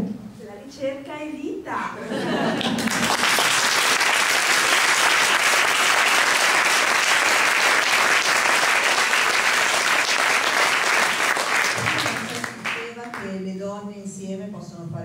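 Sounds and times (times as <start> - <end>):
crowd applauding: 2.5 - 13.2.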